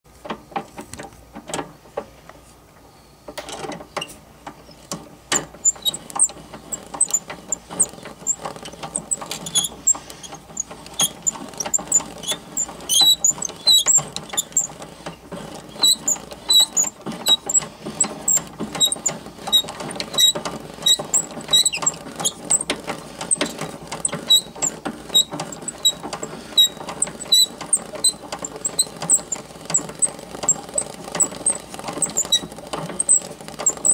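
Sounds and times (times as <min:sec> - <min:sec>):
short high squeaks: 0:05.6 - 0:14.8, 0:15.7 - 0:17.6, 0:18.3 - 0:22.7, 0:24.2 - 0:33.9.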